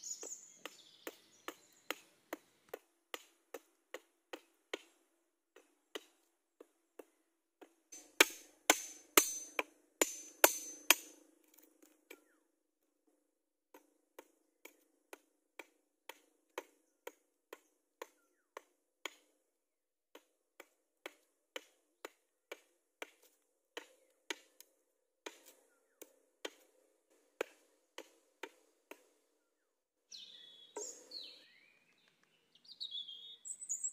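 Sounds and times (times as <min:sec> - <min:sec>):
machete chopping wood: 0:00.2 - 0:05.0, 0:05.6 - 0:06.2, 0:07.0 - 0:12.4, 0:13.7 - 0:19.4, 0:20.1 - 0:29.1
hammer striking machete blade: 0:08.0 - 0:11.2.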